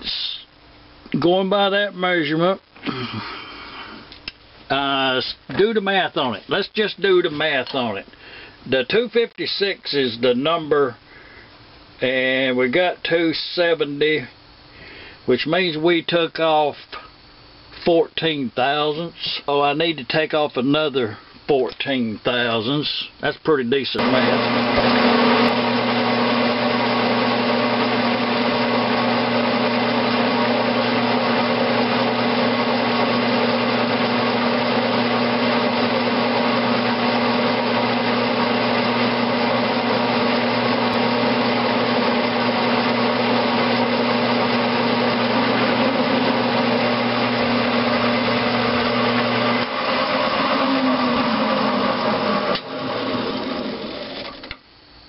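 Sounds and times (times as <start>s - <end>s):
metal lathe running: 24.0s - 54.5s.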